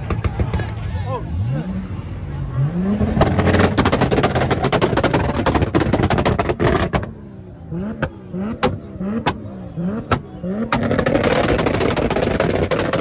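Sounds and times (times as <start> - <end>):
exhaust popping and banging: 0.0 - 0.8, 3.0 - 7.2, 7.9 - 13.0
car engine revving: 0.3 - 13.0.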